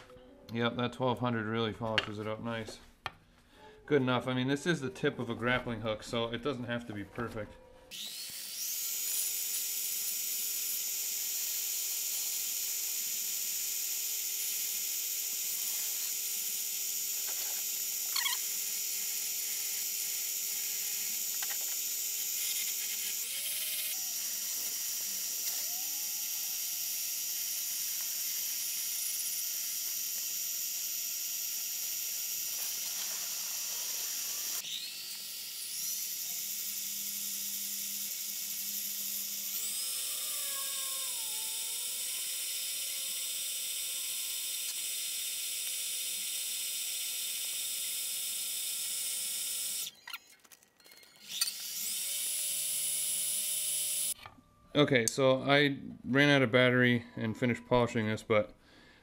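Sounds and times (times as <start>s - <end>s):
lathe motor whining: 7.9s - 44.9s.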